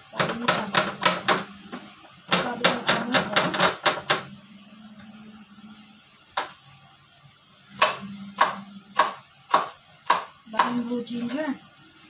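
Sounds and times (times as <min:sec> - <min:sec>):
knife chopping on wooden board: 0:07.8 - 0:10.8.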